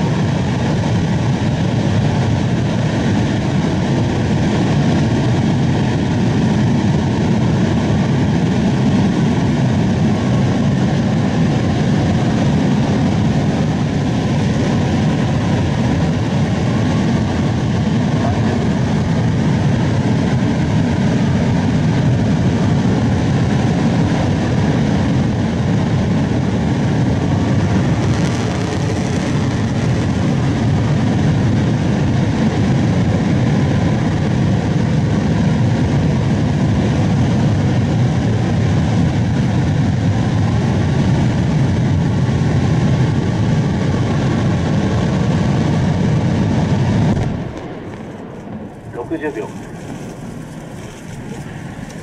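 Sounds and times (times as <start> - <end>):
rocket motor rumbling: 25.3 - 31.8, 43.3 - 52.0.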